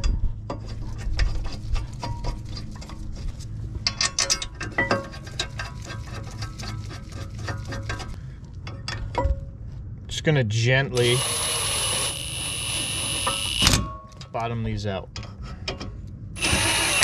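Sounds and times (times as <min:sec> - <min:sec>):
metal parts clicking and clinking: 0:03.8 - 0:05.6.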